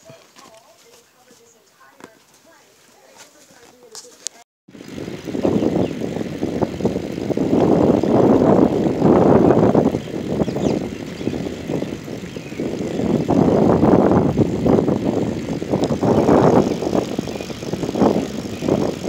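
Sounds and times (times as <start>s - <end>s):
wheels rolling on asphalt: 0.0s - 19.0s
wind buffeting microphone: 4.7s - 19.0s.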